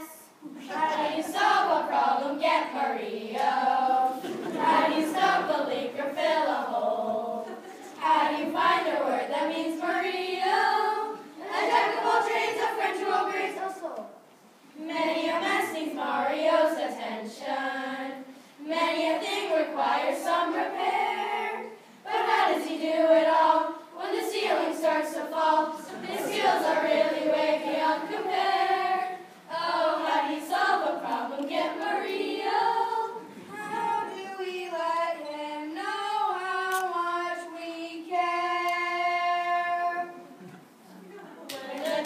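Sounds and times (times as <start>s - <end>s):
children's choir singing: 0.0s - 14.0s, 14.8s - 40.6s, 41.4s - 42.0s.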